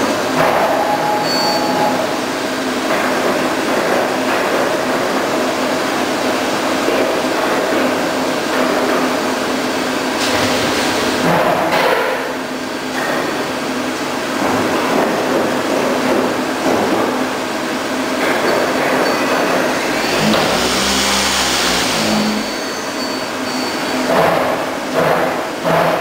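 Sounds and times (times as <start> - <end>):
deep hum and high whine: 17.5 - 24.2
machine running: 18.2 - 25.1.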